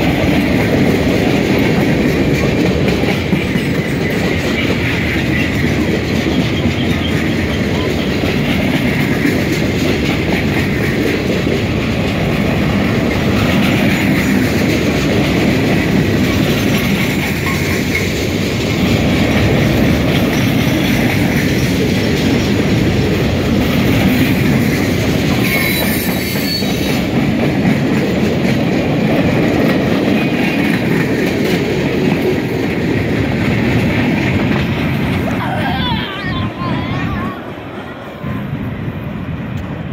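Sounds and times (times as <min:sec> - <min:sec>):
clickety-clack over rail joints: 0:00.0 - 0:39.9
train wheels rumbling on rails: 0:00.0 - 0:39.9
high-pitched wheel squeal: 0:25.4 - 0:26.9.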